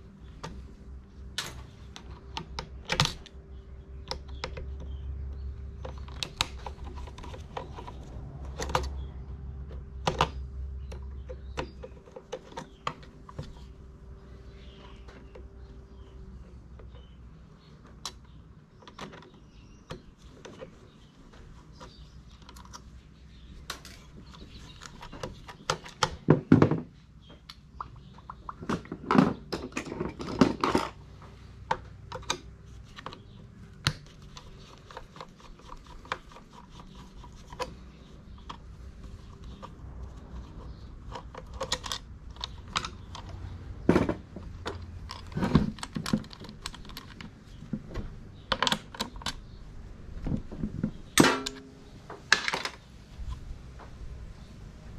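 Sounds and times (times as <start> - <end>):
metal parts clicking and knocking: 31.7 - 49.5.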